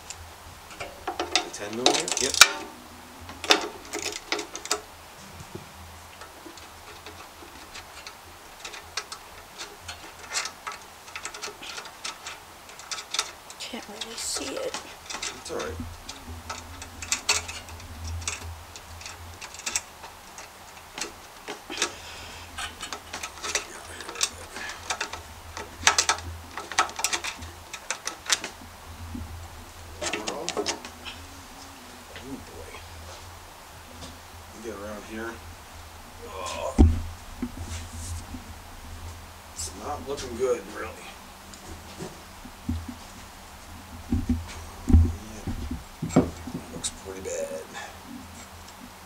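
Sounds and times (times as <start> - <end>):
hand ratchet clicking: 6.2 - 28.6.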